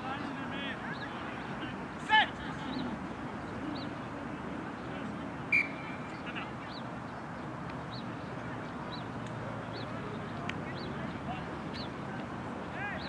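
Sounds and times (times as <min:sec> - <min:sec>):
shrill whistle-like tone: 0:05.5 - 0:05.9.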